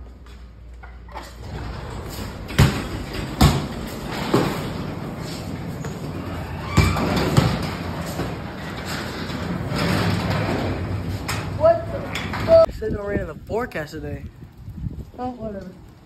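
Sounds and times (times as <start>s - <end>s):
garage door opener running: 1.2s - 12.7s
rain rumbling: 7.1s - 16.0s.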